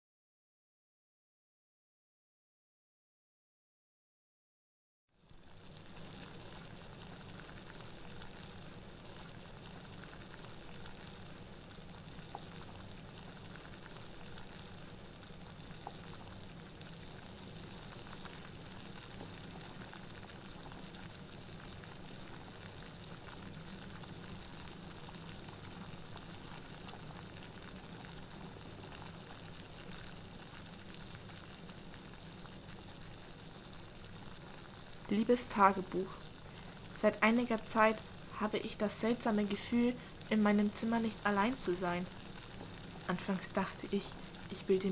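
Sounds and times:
room tone hiss: 0:05.2 - 0:44.9
faint small ticks: 0:12.1 - 0:14.7, 0:15.7 - 0:17.0, 0:17.7 - 0:21.2.

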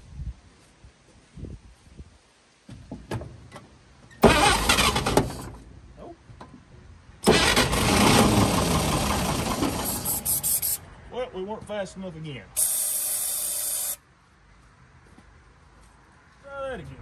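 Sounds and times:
engine firing bursts: 0:04.2 - 0:05.5, 0:07.2 - 0:10.8
engine cranking on starter: 0:04.2 - 0:05.6, 0:07.2 - 0:10.8.

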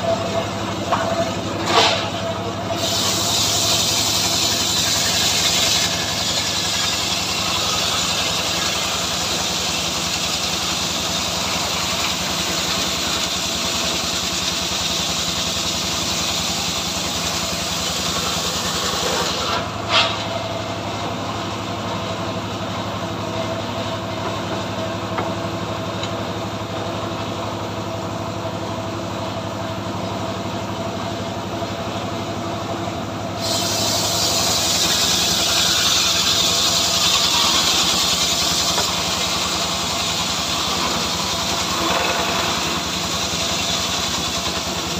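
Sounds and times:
sawmill blade ripping log: 0:01.6 - 0:02.1, 0:02.8 - 0:20.4, 0:33.4 - 0:44.9
saw blade running free: 0:02.8 - 0:14.8, 0:33.4 - 0:44.9.

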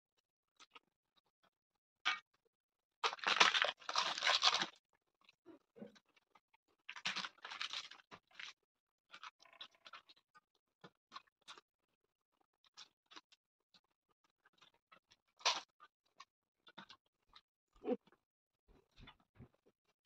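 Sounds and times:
small clicks of eating: 0:04.5 - 0:11.7, 0:12.4 - 0:18.2.

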